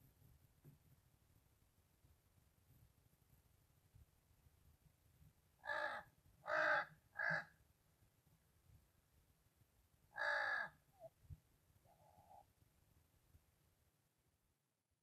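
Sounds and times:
crow cawing: 5.6 - 7.6, 10.1 - 10.8.

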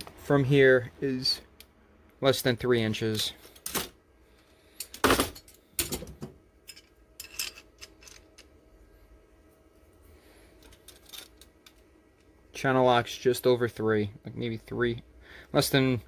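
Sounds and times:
metal pliers clicking and clinking: 6.6 - 8.5.

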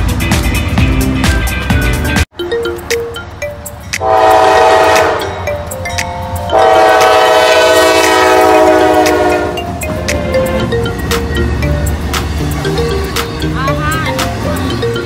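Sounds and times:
train rumble: 3.7 - 15.0
locomotive air horn blasts: 4.0 - 5.4, 6.5 - 9.7.

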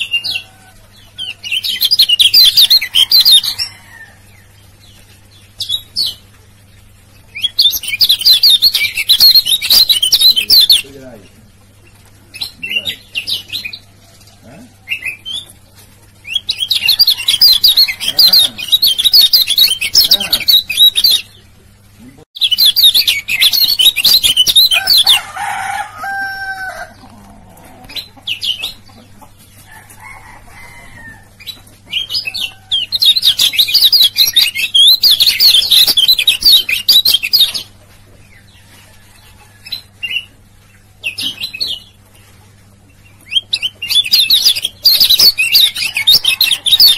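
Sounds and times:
bird twittering song: 0.0 - 14.0, 16.2 - 25.2, 31.4 - 38.8, 42.9 - 46.9
bird chirps: 4.9 - 11.0, 16.3 - 21.4, 22.4 - 25.2, 31.4 - 37.7, 43.1 - 46.9.

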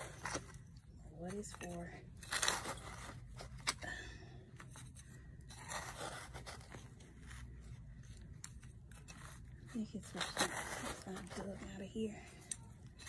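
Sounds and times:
hand trowel scraping soil: 1.2 - 3.7, 5.5 - 12.4.

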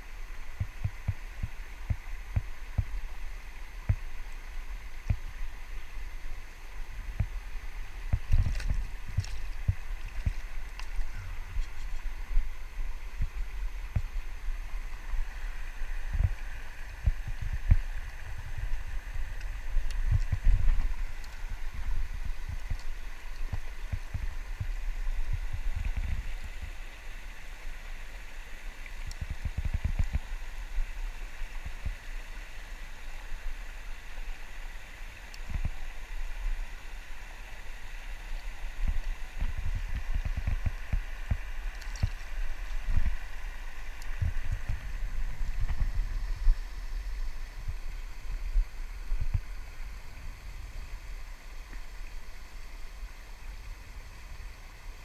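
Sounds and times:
river water rushing over weir: 0.0 - 55.0
low rumbles on microphone: 7.0 - 26.8, 38.8 - 51.1.

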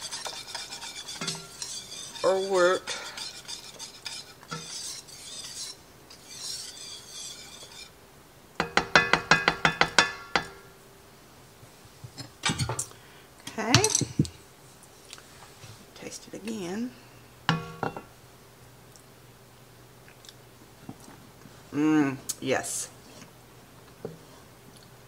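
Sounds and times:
whisk tapping pot rim: 0.0 - 7.9
whisk scraping in pot: 0.0 - 8.0.

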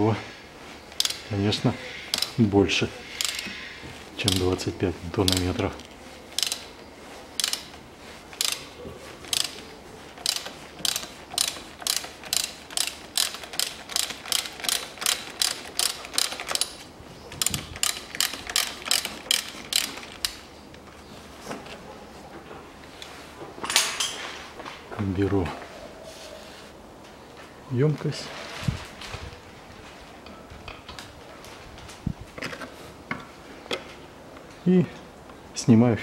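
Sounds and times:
ratchet wrench clicking: 0.9 - 1.3, 2.1 - 2.4, 3.2 - 3.6, 4.2 - 4.6, 5.2 - 5.6, 6.4 - 6.7, 7.4 - 8.7, 9.3 - 9.6, 10.2 - 20.4.

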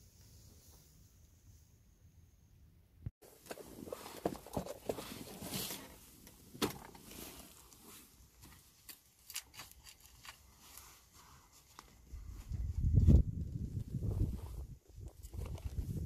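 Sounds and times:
gusty wind: 12.0 - 16.0.

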